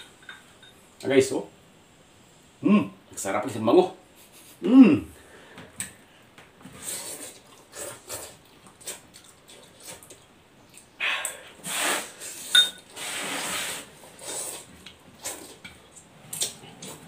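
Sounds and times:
breathing: 5.2 - 6.3
person slurping noodles: 6.8 - 9.0, 11.6 - 15.6
chewing: 6.8 - 10.9, 14.2 - 17.0.

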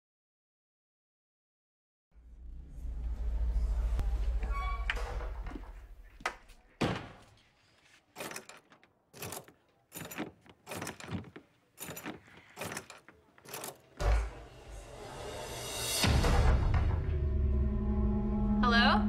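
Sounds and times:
sharp clicks and knocks: 8.2 - 13.9.

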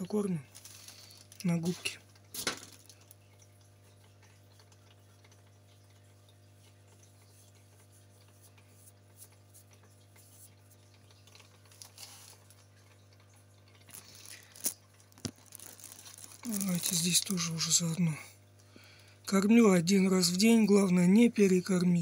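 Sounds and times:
aquarium pump humming: 0.0 - 22.0.

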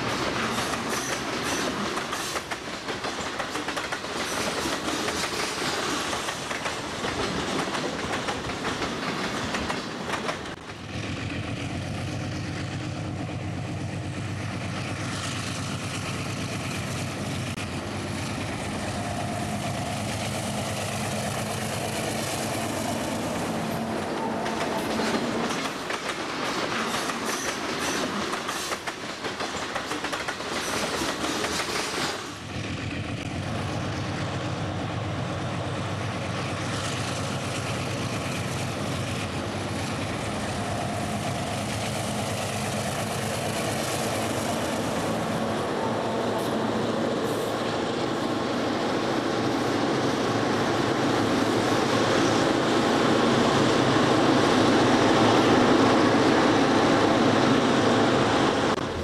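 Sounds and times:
train wheels clacking over rail joints: 0.0 - 18.6, 19.5 - 33.4
locomotive engine hum: 0.0 - 28.5, 32.4 - 59.0.

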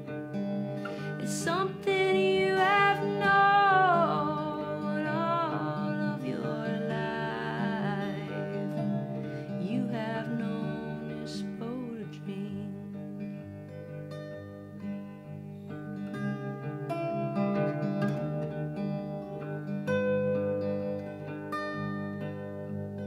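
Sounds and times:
fingerpicked acoustic guitar: 0.0 - 23.0
woman singing: 0.8 - 13.1.

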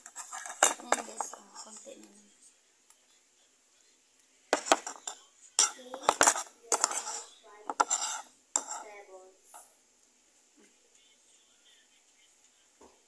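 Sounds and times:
metal spoon scraping a cup: 0.0 - 1.8, 4.6 - 9.0.

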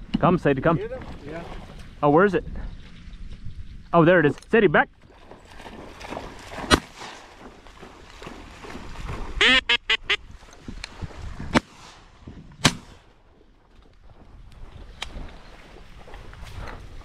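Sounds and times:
duck quacking: 9.4 - 10.2.

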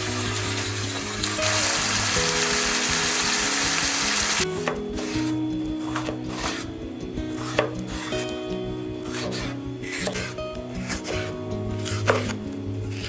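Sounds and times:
background music: 0.0 - 13.0
knife slicing on cutting board: 10.0 - 10.3.

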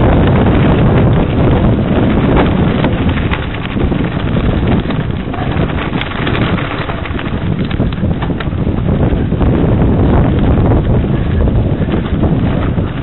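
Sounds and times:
bike rattling clicks: 0.0 - 9.4
wind buffeting microphone: 0.0 - 13.0.

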